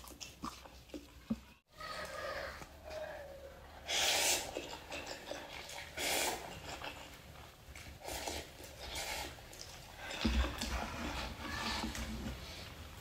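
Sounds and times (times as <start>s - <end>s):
person slurping noodles: 3.9s - 7.1s.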